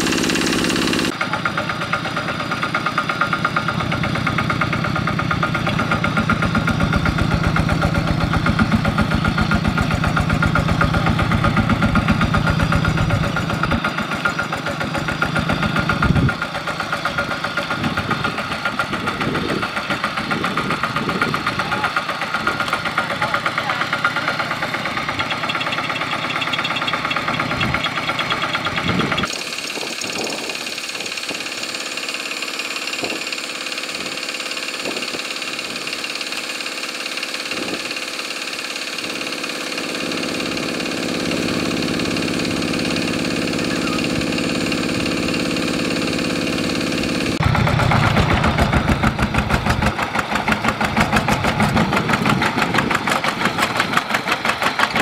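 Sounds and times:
diesel engine knocking: 0.0s - 55.0s.

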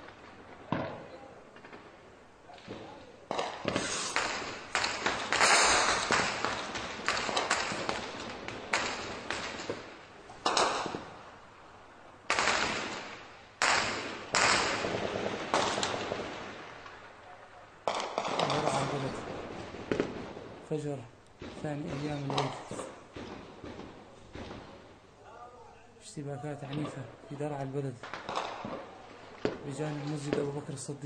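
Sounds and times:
heavy gunfire: 2.8s - 9.8s, 12.3s - 16.8s.

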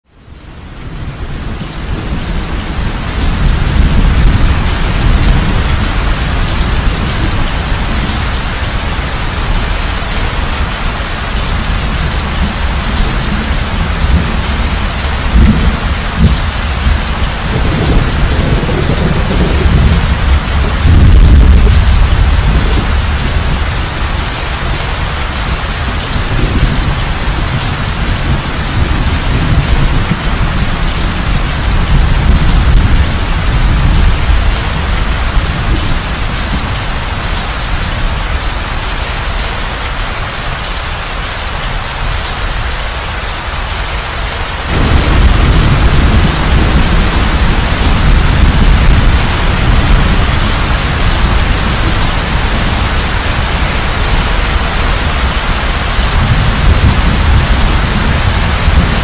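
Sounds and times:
heavy rain: 0.0s - 59.0s
rolling thunder: 0.9s - 37.0s, 44.6s - 59.0s.

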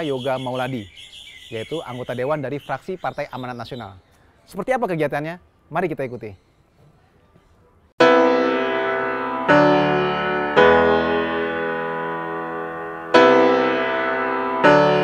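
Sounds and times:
piano chords ringing: 8.0s - 15.0s.

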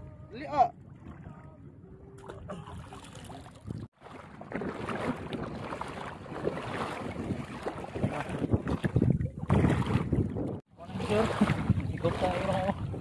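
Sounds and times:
wind buffeting microphone: 3.2s - 13.0s.

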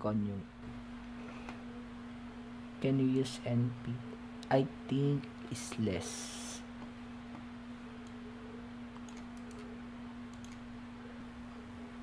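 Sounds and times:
steady low hum: 0.0s - 12.0s
keyboard typing clicks: 8.9s - 9.7s, 10.3s - 10.7s.

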